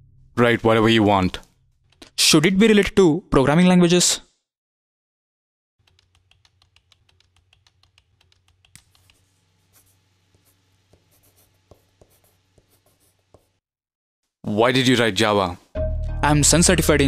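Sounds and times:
marker writing on a whiteboard: 5.9 - 13.6.

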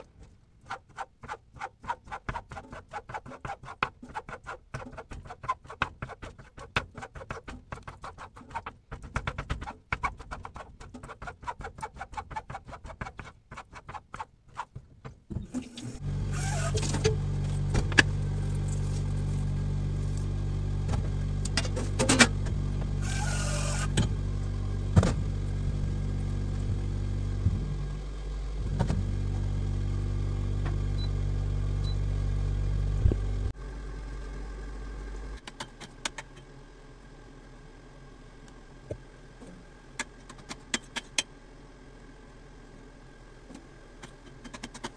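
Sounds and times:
low machine hum: 15.3 - 44.5.

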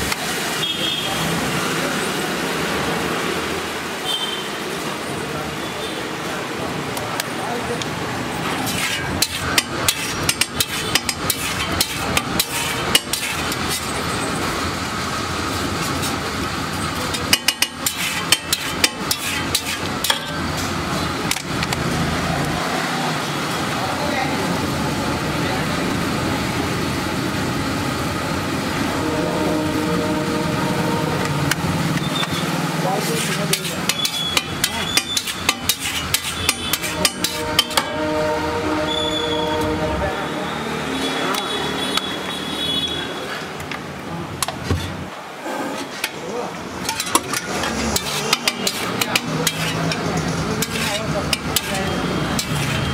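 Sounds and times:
metal spatula scraping iron griddle: 8.4 - 14.5, 15.5 - 21.4, 32.0 - 39.7, 45.6 - 52.9
sharp metallic taps: 17.3 - 20.4, 33.5 - 38.0, 46.8 - 51.8.

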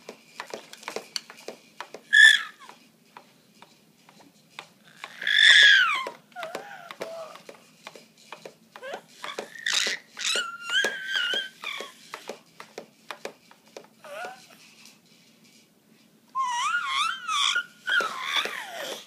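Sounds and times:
baby jumper clicks and knocks: 0.0 - 14.5, 17.2 - 19.0
baby squealing and babbling: 2.1 - 2.7, 4.9 - 7.4, 8.8 - 12.0, 14.0 - 14.6, 16.4 - 19.0.

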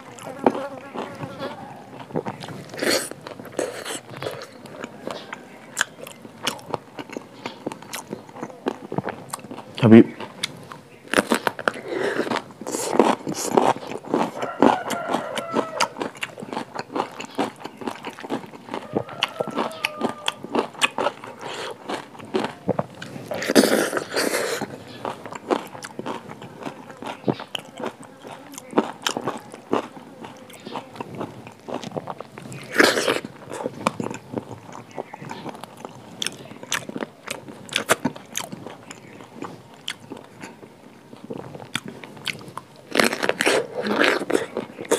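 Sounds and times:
person chewing crunchy food: 0.0 - 44.9.

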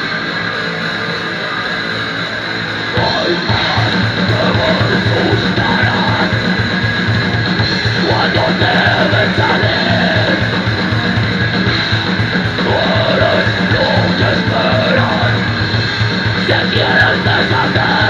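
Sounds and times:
distorted electric guitar: 0.0 - 18.0
fast drums: 2.9 - 18.0
growled vocals: 3.0 - 11.2, 12.5 - 15.6, 16.4 - 18.0.

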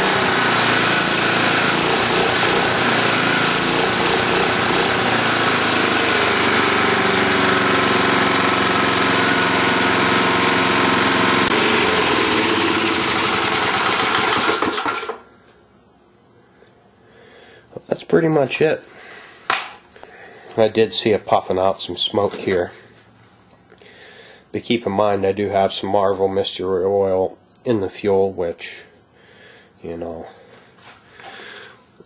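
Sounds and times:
lawn mower engine running: 0.0 - 15.5.

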